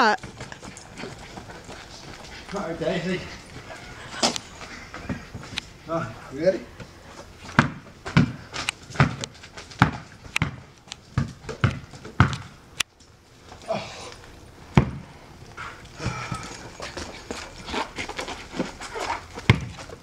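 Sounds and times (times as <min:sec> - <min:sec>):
basketball bouncing on court: 0:07.6 - 0:12.5, 0:14.8 - 0:15.0, 0:19.5 - 0:19.8.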